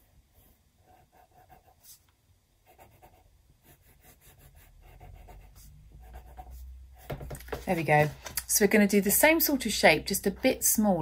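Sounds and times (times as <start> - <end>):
pencil scratching on paper: 0.0 - 8.1.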